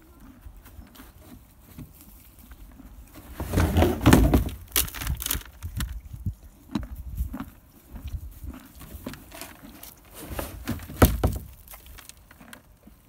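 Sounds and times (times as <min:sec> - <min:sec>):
horse eating from bucket: 0:00.0 - 0:13.0.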